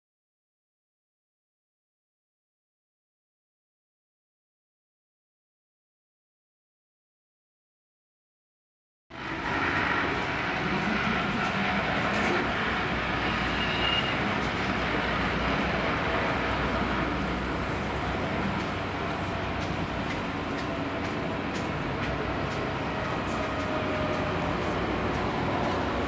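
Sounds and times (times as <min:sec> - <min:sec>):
train wheels rumbling on rails: 0:09.1 - 0:26.0.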